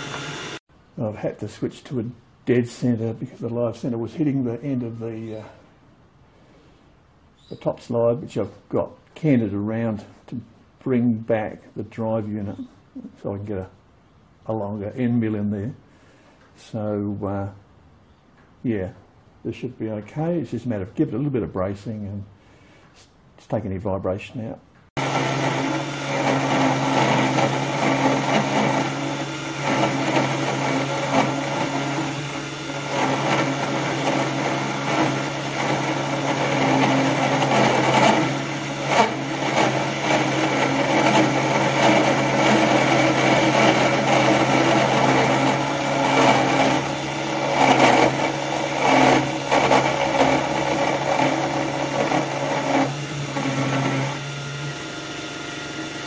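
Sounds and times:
end mill cutting metal: 0.0 - 0.6, 25.0 - 56.0
motor tone: 0.0 - 0.6.

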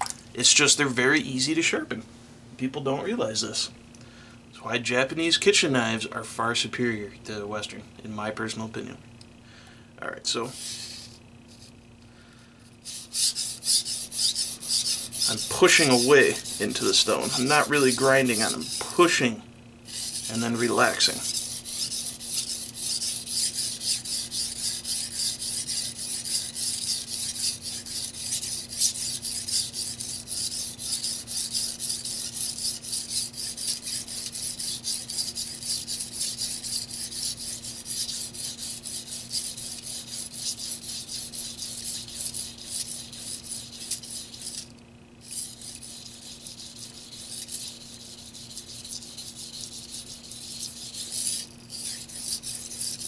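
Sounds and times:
knife blade rasping on whetstone: 10.5 - 11.8, 12.8 - 19.3, 19.9 - 53.0.

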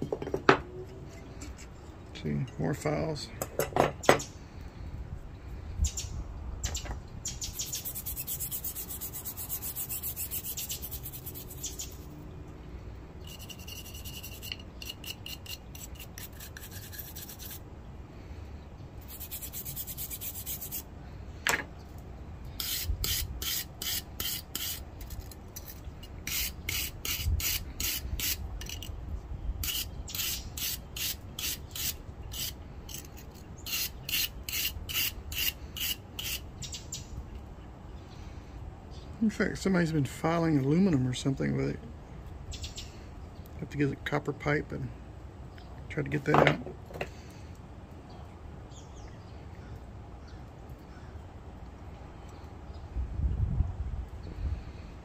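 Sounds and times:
wire brush scrubbing file: 7.6 - 12.0, 13.2 - 17.6, 19.0 - 20.9, 22.6 - 28.9, 29.6 - 36.4
file scraping against file: 7.7 - 12.0, 13.2 - 17.6, 19.1 - 20.8, 22.6 - 28.9, 29.6 - 36.4.

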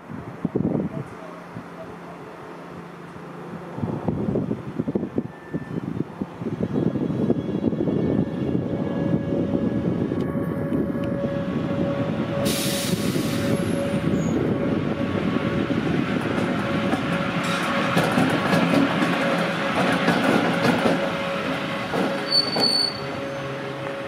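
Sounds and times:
electric locomotive rumbling: 0.0 - 24.0
wheels clicking over rail joints: 16.3 - 21.2.

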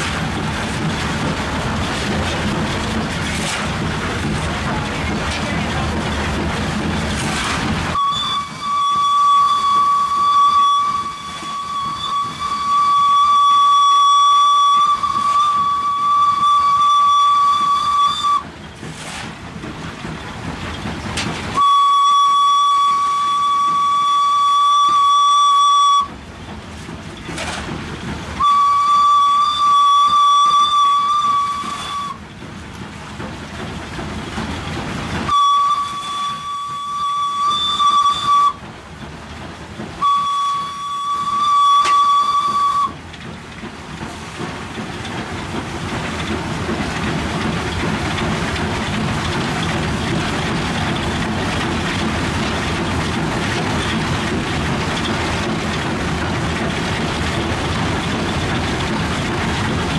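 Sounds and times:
coal shovel scraping: 3.2 - 3.7, 7.1 - 7.7, 18.9 - 19.4
steam locomotive whistle: 7.9 - 18.5, 21.6 - 26.2, 28.4 - 32.2, 35.3 - 38.6, 40.0 - 43.0.

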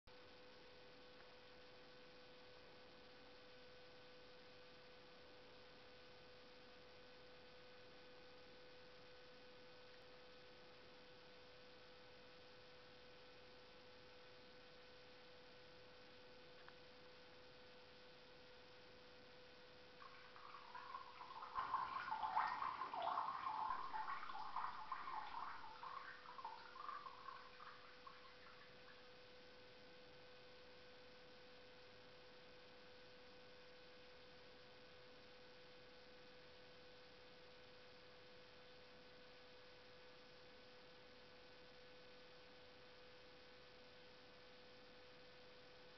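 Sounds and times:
faint steady hum: 0.0 - 45.9
urine trickling into toilet water: 20.0 - 29.1.

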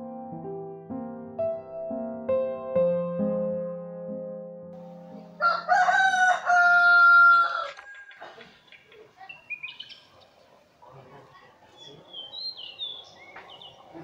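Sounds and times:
piano note: 0.0 - 5.4
rooster crowing: 5.4 - 8.4
small birds chirping: 7.4 - 14.0.

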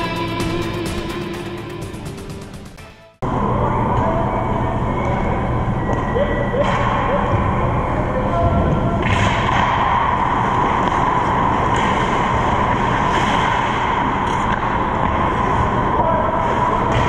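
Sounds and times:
knocks from sticks and pucks: 9.0 - 17.0.

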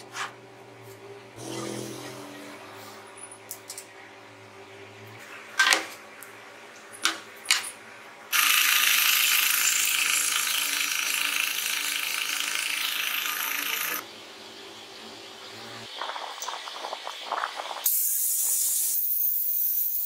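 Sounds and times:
drill press boring into wood: 8.4 - 14.0.

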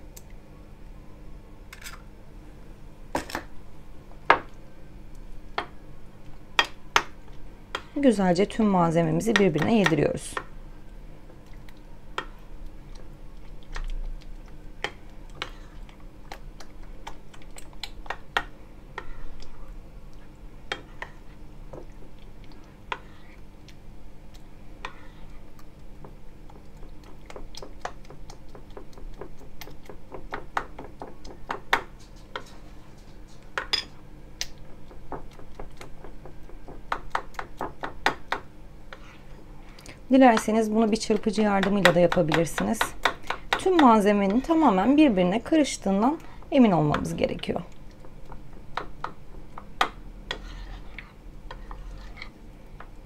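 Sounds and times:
utensil scraping a bowl: 19.0 - 19.4, 22.9 - 23.4, 24.8 - 25.4, 38.9 - 39.3, 50.3 - 52.4.

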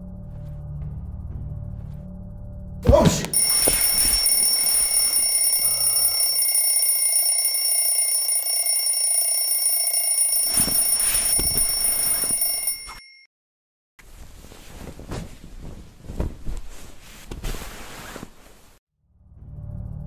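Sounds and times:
alarm clock ringing: 3.3 - 13.3
soft knocks or rustles: 14.0 - 18.8.

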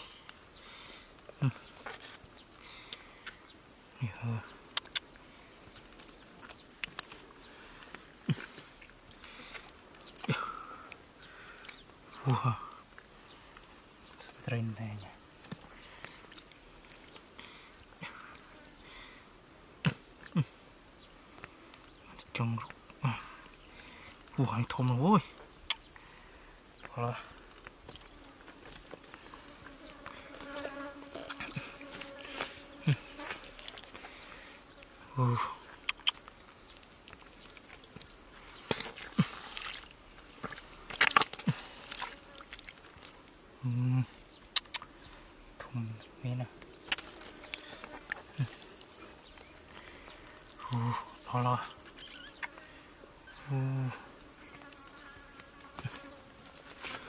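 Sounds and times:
wet squelching of hands in mud: 30.1 - 34.2, 35.9 - 43.2
sharp wet slaps: 37.1 - 43.1, 46.9 - 47.2.

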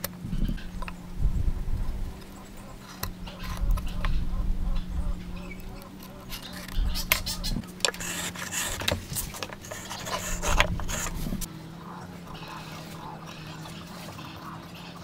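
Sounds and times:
steady low hum: 0.0 - 15.0
wood blocks knocking and rubbing: 5.8 - 11.5
pen scratching on wood: 6.0 - 11.5.

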